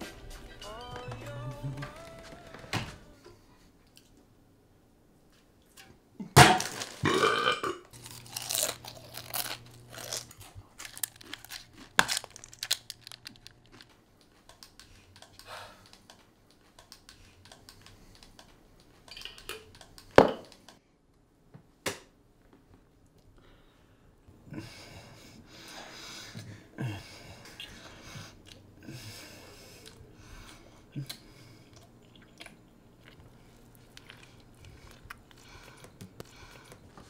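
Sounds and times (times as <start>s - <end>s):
man burping: 7.0s - 7.9s
small clicks and crunching: 7.9s - 19.5s.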